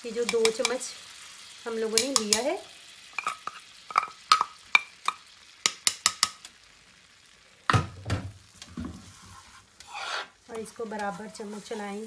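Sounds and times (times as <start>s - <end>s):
spoon scraping frying pan: 0.2s - 0.9s, 3.1s - 6.4s, 8.8s - 10.4s.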